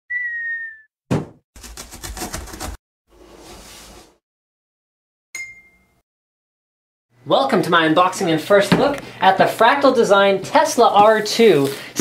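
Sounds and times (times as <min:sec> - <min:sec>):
high sliding whistle tone: 0:00.1 - 0:00.9
thud: 0:01.1 - 0:01.4.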